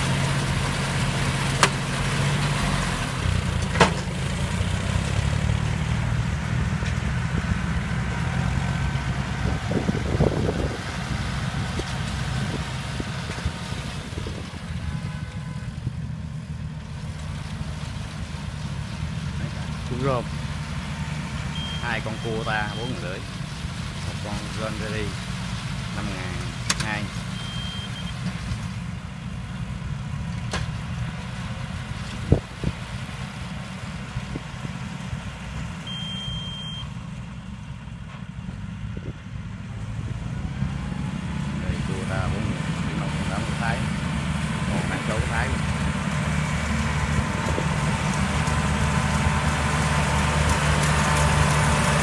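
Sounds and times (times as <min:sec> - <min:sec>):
tractor diesel engines rumbling: 0:00.0 - 0:52.0
high steady beep: 0:21.6 - 0:23.0, 0:27.4 - 0:28.1, 0:35.9 - 0:36.9.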